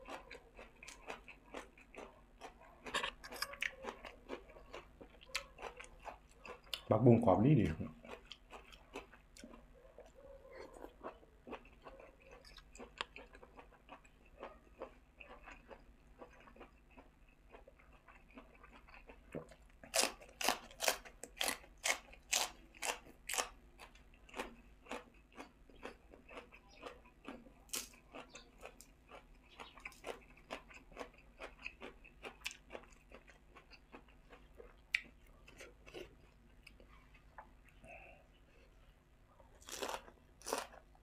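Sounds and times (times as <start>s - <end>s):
soft moist chewing: 0.0s - 41.0s.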